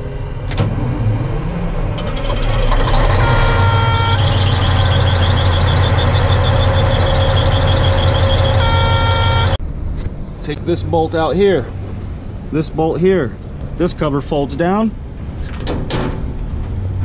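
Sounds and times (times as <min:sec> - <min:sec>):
diesel engine revving: 0:00.0 - 0:14.1
beeping alarm chord: 0:03.2 - 0:05.2, 0:08.0 - 0:09.6
rapid high pulsing buzzer: 0:03.2 - 0:05.8, 0:06.6 - 0:09.6.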